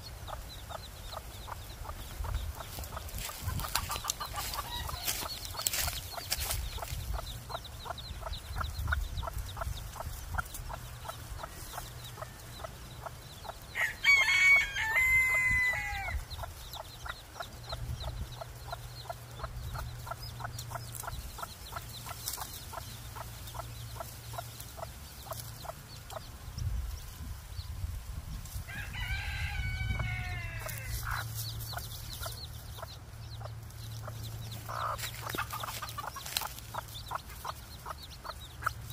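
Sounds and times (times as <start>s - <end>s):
chicken long loud calls: 13.8s - 16.2s, 28.7s - 31.1s.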